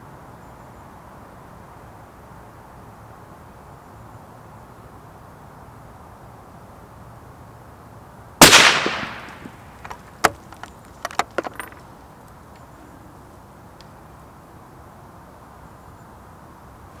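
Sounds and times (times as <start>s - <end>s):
rifle shot: 8.4s - 9.9s.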